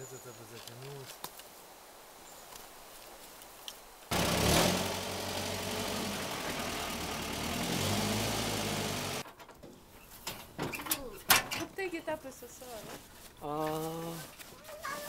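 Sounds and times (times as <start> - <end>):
engine running: 4.1 - 9.2.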